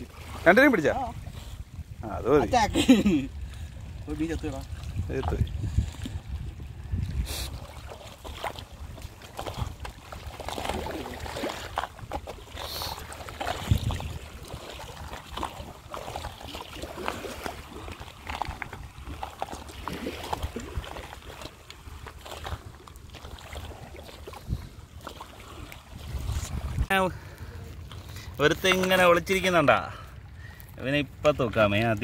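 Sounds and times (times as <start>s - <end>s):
shallow water splashing: 0.0s - 32.0s
wind rumble on microphone: 0.8s - 12.3s, 13.3s - 15.7s, 21.9s - 27.3s.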